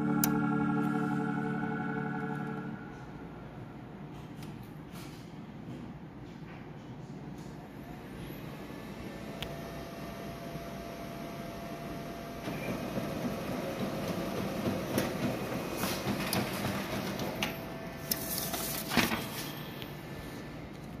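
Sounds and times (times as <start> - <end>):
printer whirring: 8.0 - 21.0
printer clack: 12.4 - 19.4
paper path clicks: 15.9 - 19.5.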